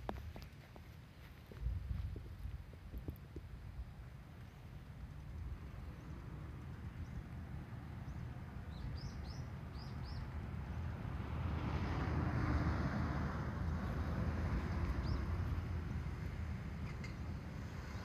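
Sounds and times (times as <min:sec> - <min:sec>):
car driving past: 0:10.6 - 0:18.0.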